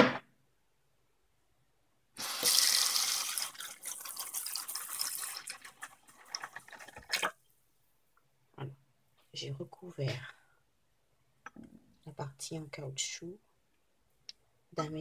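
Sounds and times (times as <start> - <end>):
tap water running into bowl: 2.2 - 7.4.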